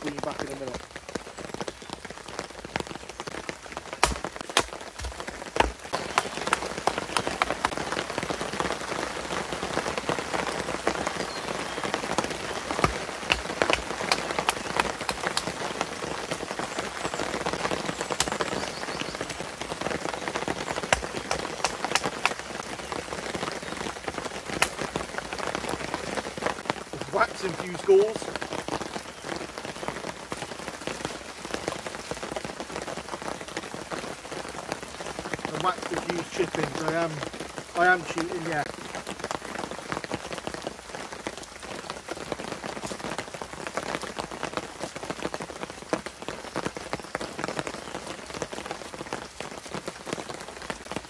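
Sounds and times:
steady rain pattering: 0.0s - 51.0s
knife splitting dry wood: 4.0s - 5.8s.

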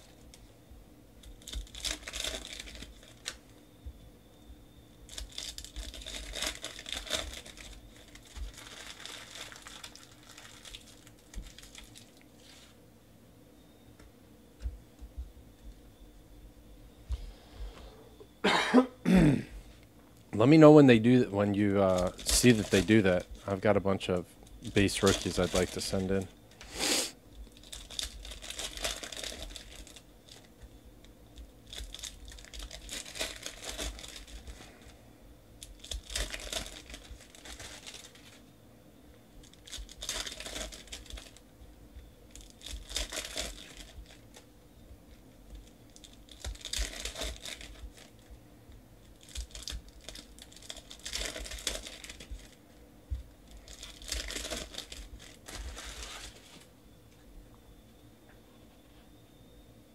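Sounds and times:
foil packs tearing and crinkling: 1.2s - 3.5s, 5.1s - 12.8s, 21.6s - 23.7s, 24.6s - 26.3s, 27.4s - 30.5s, 31.6s - 35.0s, 35.6s - 38.4s, 39.4s - 41.4s, 42.3s - 44.5s, 45.6s - 48.3s, 49.0s - 52.6s, 53.5s - 56.7s.

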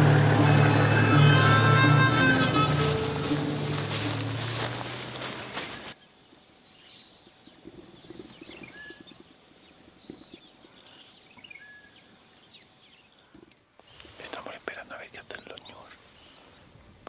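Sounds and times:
background music: 0.0s - 5.5s
birds chirping and whistling: 1.4s - 14.0s
soft rustling and crackling: 3.7s - 6.0s, 13.3s - 16.6s.

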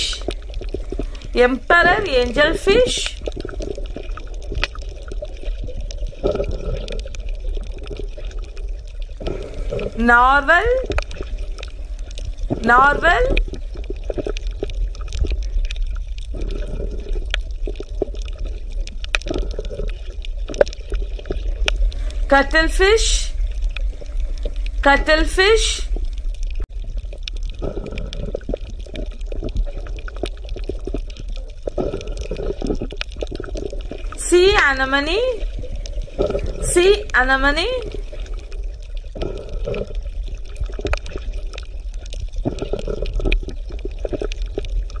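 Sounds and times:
gurgling: 0.0s - 5.4s, 9.2s - 14.5s, 27.5s - 41.4s, 42.4s - 44.8s
bubbling pops and clicks: 0.0s - 22.3s, 26.0s - 45.0s
deep underwater rumble: 0.0s - 45.0s.

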